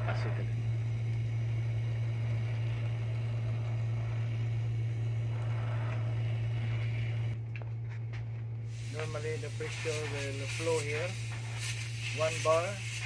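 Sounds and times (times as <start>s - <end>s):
torch flame hissing: 0.0s - 7.4s, 8.6s - 13.0s
low machinery hum: 0.0s - 13.0s.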